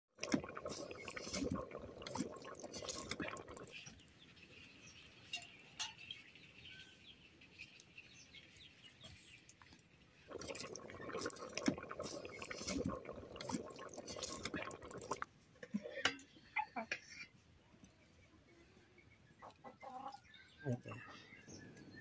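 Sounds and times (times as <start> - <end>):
water bubbling in a pot: 0.1 - 4.0, 10.2 - 16.3
birds chirping: 16.1 - 22.0.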